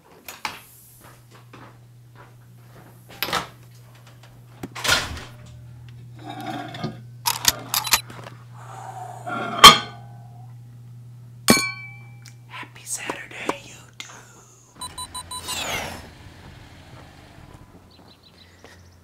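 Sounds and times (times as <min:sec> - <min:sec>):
low steady hum: 0:00.3 - 0:18.3
microwave door opening: 0:03.1 - 0:08.0.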